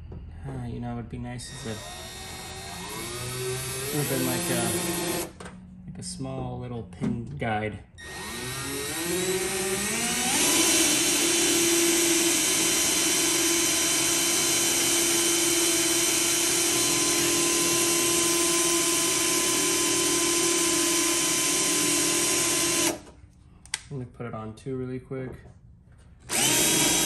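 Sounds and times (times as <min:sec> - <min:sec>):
cordless drill drilling into sheet metal: 0:01.5 - 0:05.4, 0:08.0 - 0:23.1, 0:26.3 - 0:27.0.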